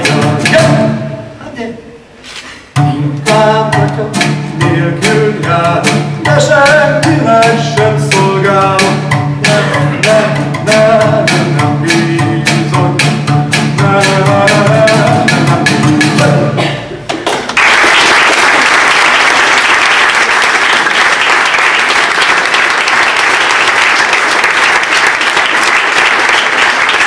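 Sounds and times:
guitar chords: 0:00.0 - 0:01.4, 0:02.8 - 0:16.6
beaten strings: 0:02.8 - 0:16.6
audience applause: 0:17.2 - 0:27.0.

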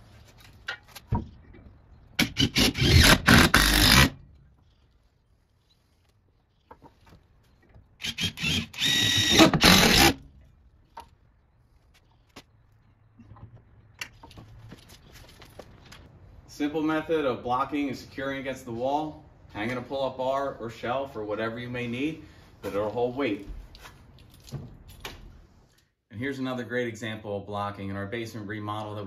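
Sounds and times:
power driver whining: 0:08.0 - 0:10.2.

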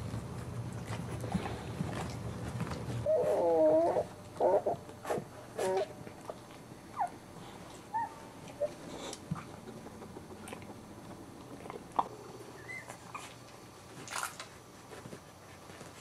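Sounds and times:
scuffling and suckling noises: 0:00.0 - 0:16.0
puppies squeaking and whimpering: 0:03.0 - 0:04.9, 0:06.9 - 0:07.2, 0:07.9 - 0:09.1, 0:12.5 - 0:13.4.

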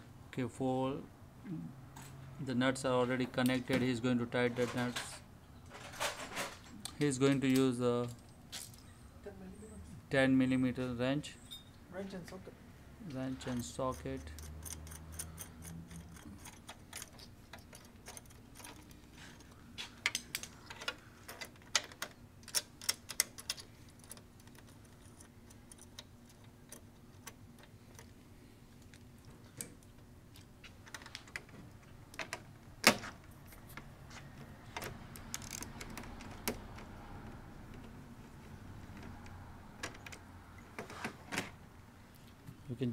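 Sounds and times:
metallic wrench clicks: 0:13.9 - 0:17.1.

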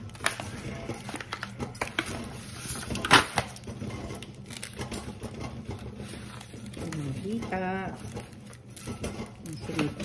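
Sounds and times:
foil pan crinkle: 0:00.0 - 0:05.1.

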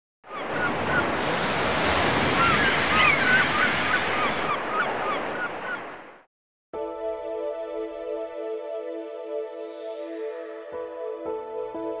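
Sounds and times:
surf breaking against rocks: 0:00.6 - 0:04.5.

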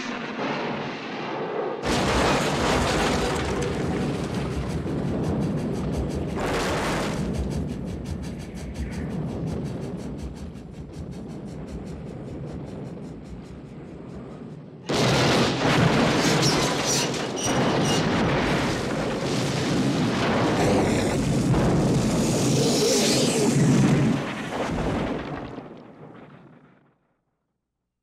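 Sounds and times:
huge explosion blast rumbling: 0:00.0 - 0:26.7
train noise: 0:01.9 - 0:14.9, 0:15.6 - 0:19.1.

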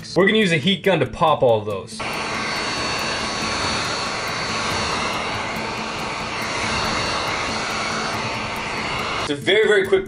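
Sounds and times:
heat gun blowing air: 0:02.0 - 0:09.4.

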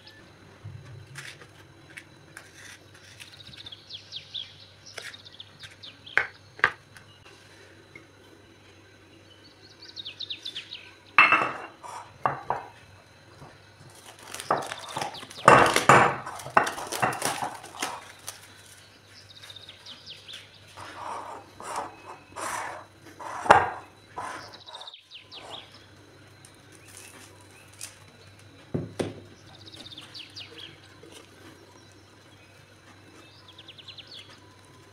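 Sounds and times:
plastic wrap crinkling: 0:13.8 - 0:18.9.

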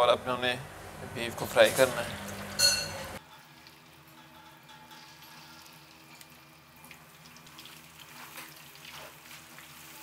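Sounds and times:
oil sizzling with crackles: 0:03.2 - 0:10.0.

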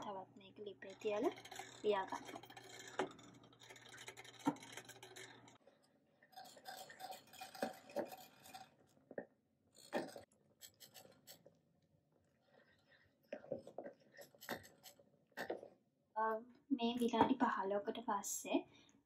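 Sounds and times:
wooden spoon scraping a metal pot: 0:00.0 - 0:05.6, 0:06.2 - 0:09.0, 0:09.8 - 0:11.5, 0:13.5 - 0:15.7.

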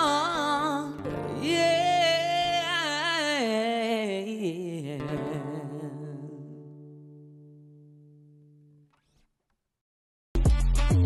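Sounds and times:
woman singing wordless melody: 0:00.0 - 0:07.2
acoustic guitar: 0:00.0 - 0:09.3.

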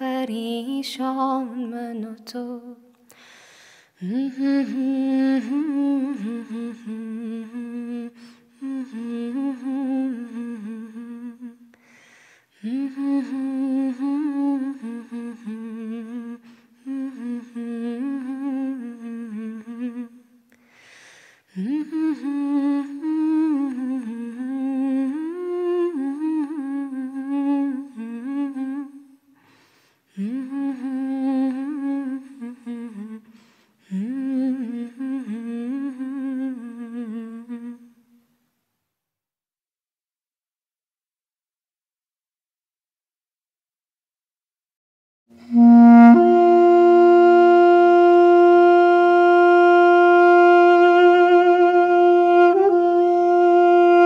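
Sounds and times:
person humming a melody: 0:04.0 - 0:11.8, 0:12.6 - 0:20.3, 0:21.6 - 0:29.2, 0:30.2 - 0:38.0, 0:45.4 - 0:54.0.

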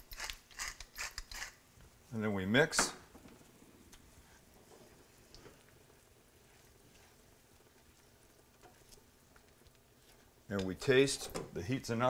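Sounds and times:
sauce simmering in pan: 0:03.2 - 0:11.1
spoon stirring and clicking on pan: 0:06.5 - 0:11.4.

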